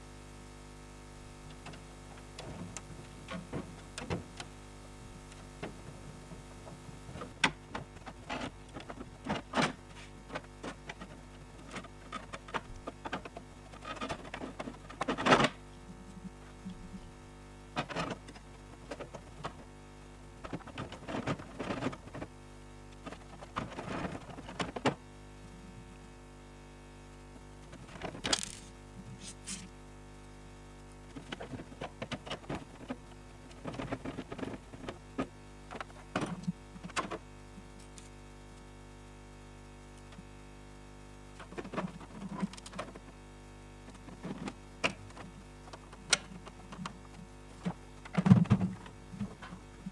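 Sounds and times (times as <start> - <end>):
plastic parts clicking and rattling: 11.7 - 15.6, 27.9 - 28.7.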